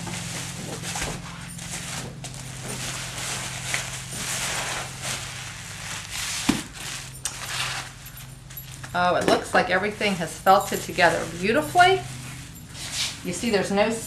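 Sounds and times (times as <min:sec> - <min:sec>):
plastic sheeting crinkling: 0:00.0 - 0:09.1
steady low hum: 0:00.0 - 0:14.0.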